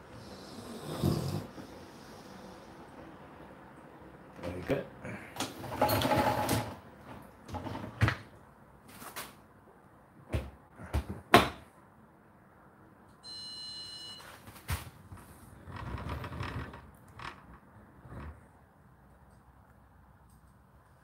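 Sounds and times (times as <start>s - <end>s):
dishwasher racks clacking: 5.4s - 6.8s.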